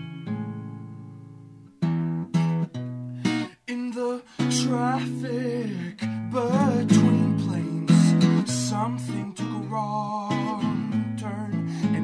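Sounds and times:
acoustic guitar: 0.0s - 12.0s
man singing with vibrato: 3.3s - 12.0s.

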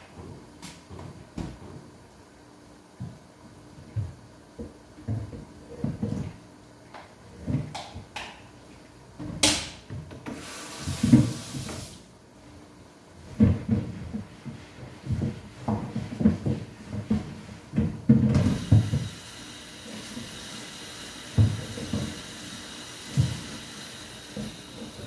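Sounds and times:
running tap water: 10.4s - 12.0s, 18.5s - 25.0s.

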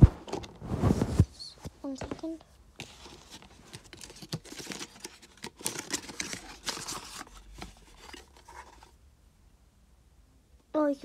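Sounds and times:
cardboard and plastic scraping: 0.0s - 1.3s, 1.9s - 9.0s.

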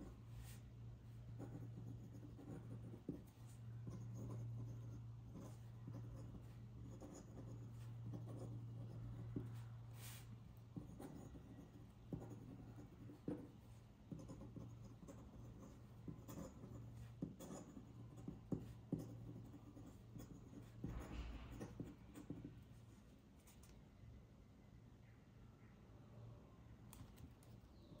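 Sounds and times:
pen nib scratching on paper: 1.3s - 22.6s.

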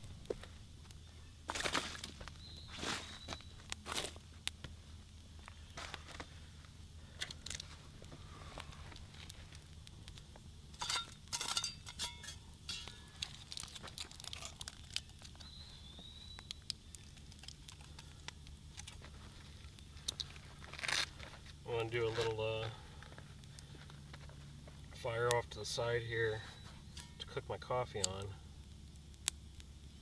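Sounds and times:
small wood fire crackling: 0.0s - 30.0s
wrapping crinkling and tearing: 12.9s - 21.5s.

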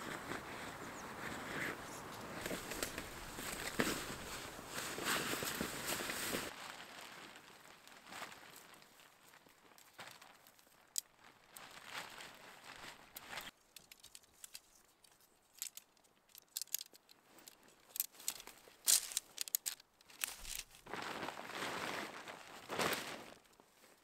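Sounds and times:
dry reeds crackling: 0.0s - 24.0s
tent fabric rustling and crinkling: 0.0s - 24.0s
sharp clicks and snaps: 13.7s - 20.7s.

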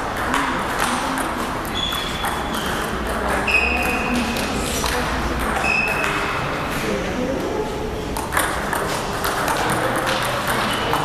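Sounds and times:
table tennis balls clicking: 0.0s - 6.5s, 8.1s - 11.0s
high-pitched squeaks: 1.7s - 2.9s, 5.6s - 6.3s.

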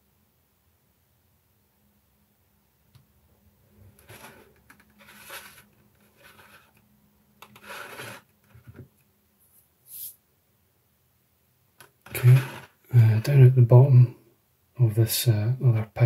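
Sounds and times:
hands handling plastic model: 4.0s - 9.0s
brief high hiss: 9.8s - 10.2s.

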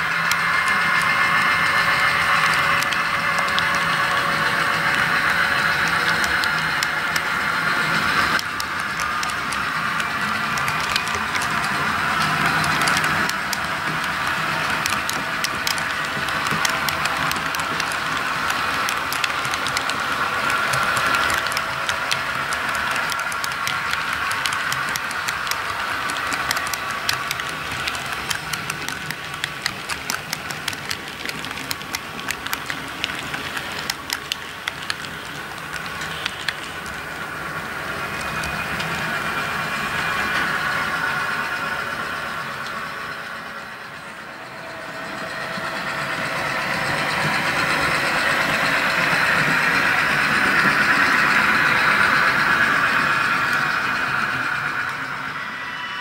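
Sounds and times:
steady running hum: 0.0s - 42.4s
model train wheels clicking: 0.0s - 56.0s.

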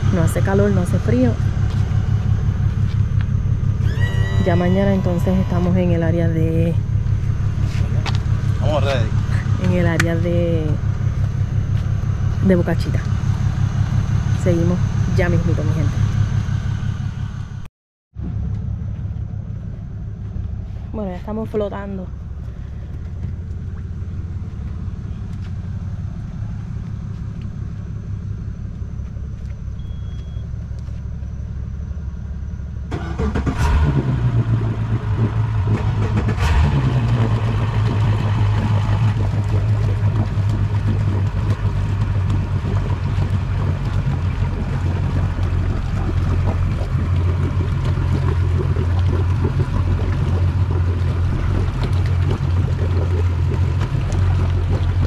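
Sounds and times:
outboard engine idling: 0.0s - 17.6s, 18.3s - 55.0s
engine revving: 0.0s - 18.4s, 32.9s - 55.0s.

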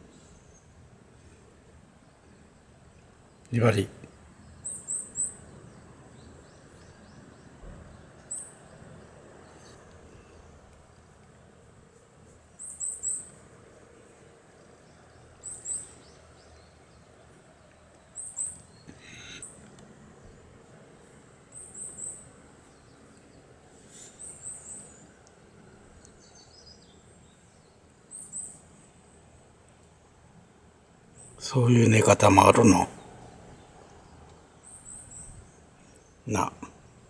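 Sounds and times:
faint background noise: 0.0s - 37.0s
small bird chirping: 3.3s - 11.1s, 12.5s - 13.4s, 14.5s - 19.6s, 21.5s - 28.9s, 31.1s - 36.5s.

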